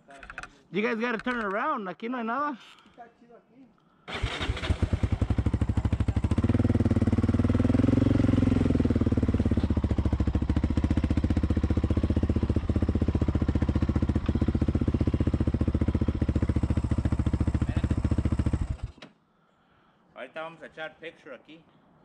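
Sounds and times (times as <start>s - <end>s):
atv engine idling: 4.1s - 18.9s.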